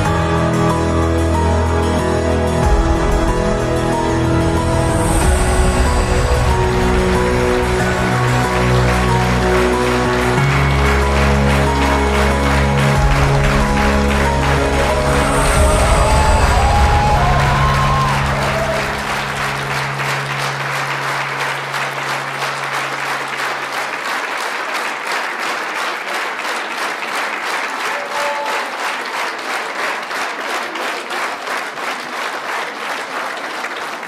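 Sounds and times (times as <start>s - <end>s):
audience applauding: 1.9s - 34.0s
held low music note: 12.8s - 23.4s.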